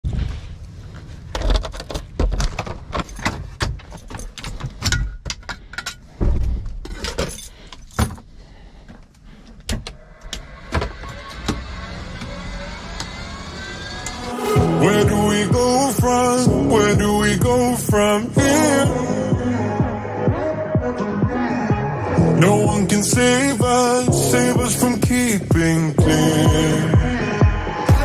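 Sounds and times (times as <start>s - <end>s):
keys jangling: 3.0s - 6.0s
faint rising whine: 10.0s - 16.9s.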